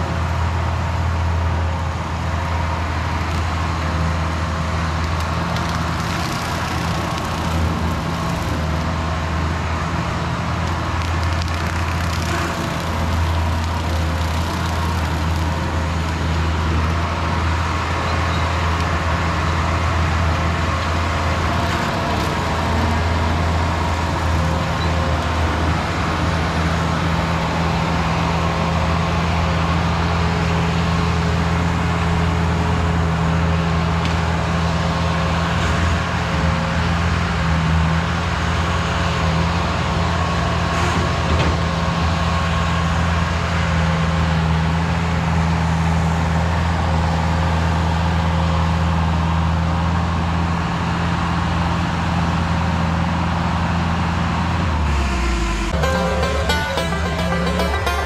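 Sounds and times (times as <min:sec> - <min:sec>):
skid steer engine running under load: 0:00.0 - 0:58.0
brush cutter cutting grass: 0:05.6 - 0:08.7, 0:11.2 - 0:15.8.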